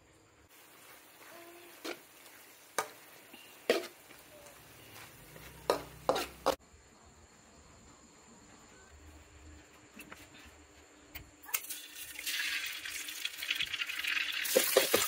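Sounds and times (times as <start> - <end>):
meat and vegetables sizzling: 0.5 - 6.6, 11.5 - 15.0
spatula striking a wok: 2.7 - 4.0, 5.4 - 6.6.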